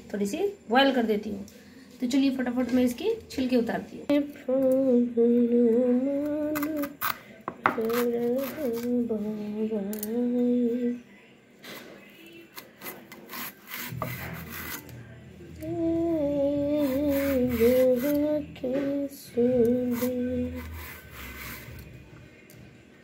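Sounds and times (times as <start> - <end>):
banana peel scraping on blade: 12.5 - 14.9.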